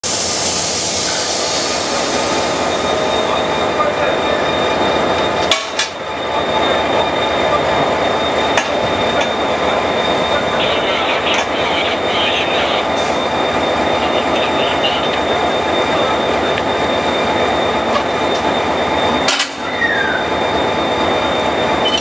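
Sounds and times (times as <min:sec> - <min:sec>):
hiss: 0:00.0 - 0:02.6
diesel locomotive idling: 0:00.0 - 0:22.0
sharp metallic clanks: 0:19.2 - 0:19.6.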